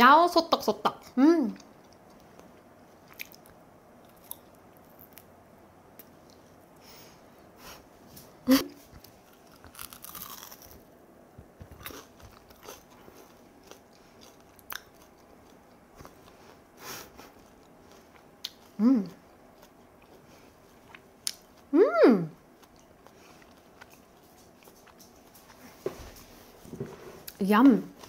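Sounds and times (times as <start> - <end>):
person chewing crunchy food: 1.6 - 5.3, 8.8 - 21.7, 22.4 - 25.7
person humming mm: 18.8 - 19.2, 21.7 - 22.4.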